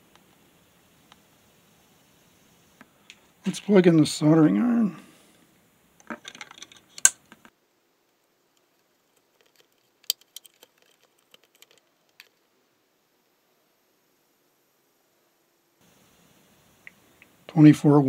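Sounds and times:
plastic clicks and rattles: 6.0 - 7.5, 8.6 - 12.4.

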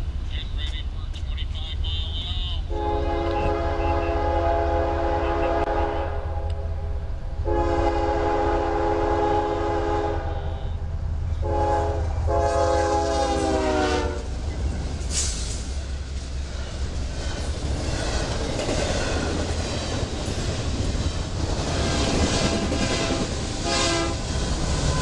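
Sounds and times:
train rumble: 0.0 - 25.0
locomotive air horn blasts: 2.7 - 6.7, 7.4 - 14.3, 22.6 - 24.2.

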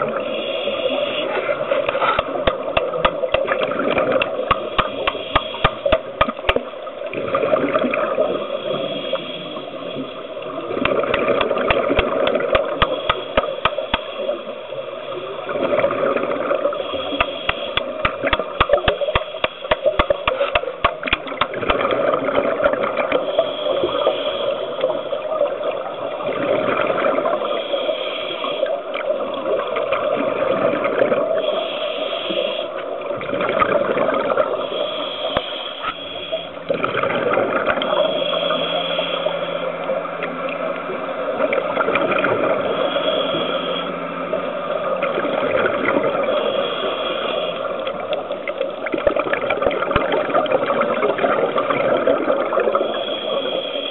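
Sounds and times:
underwater gurgling: 0.0 - 53.9
exhaled bubbles rushing: 1.2 - 8.9, 9.9 - 14.3, 15.4 - 24.1, 25.2 - 27.6, 29.0 - 31.5, 33.0 - 34.8, 36.7 - 38.3, 39.8 - 42.9, 44.1 - 46.5, 47.9 - 53.0.

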